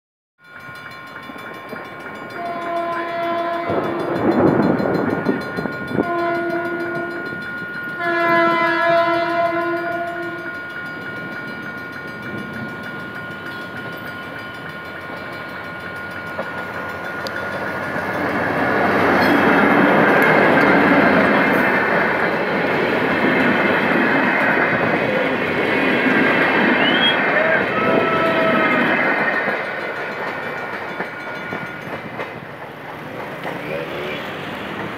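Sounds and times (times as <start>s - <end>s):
locomotive engine and wheels: 0.4s - 34.9s
locomotive horn blasts: 2.4s - 4.3s, 5.9s - 7.3s, 8.0s - 10.6s, 26.8s - 28.9s.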